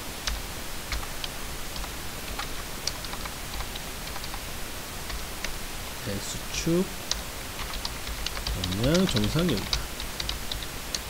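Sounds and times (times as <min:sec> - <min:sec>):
faint hiss: 0:00.0 - 0:11.0
keyboard keys clicking: 0:07.6 - 0:11.0.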